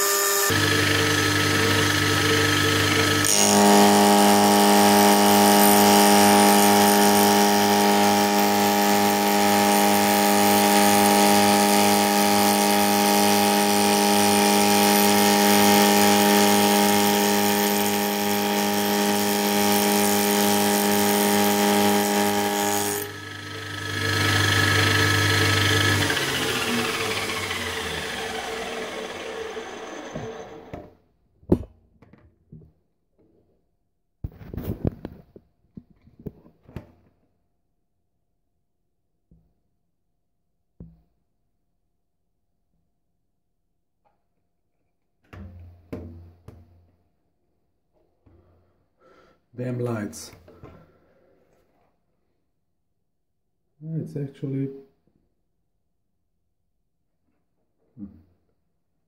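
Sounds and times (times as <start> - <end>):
end mill whine cutting steel: 0.0 - 30.9.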